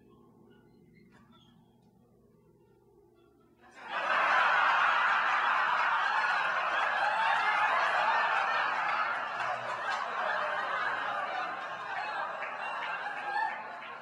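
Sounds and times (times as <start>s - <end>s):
audience laughing: 3.7s - 14.0s.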